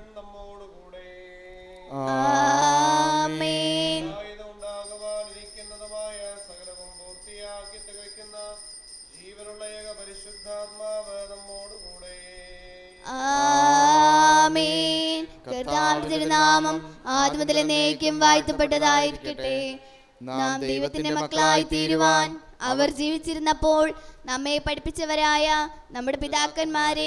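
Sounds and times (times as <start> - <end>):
sung hymn with accompaniment: 0.0 - 7.2, 8.4 - 22.8.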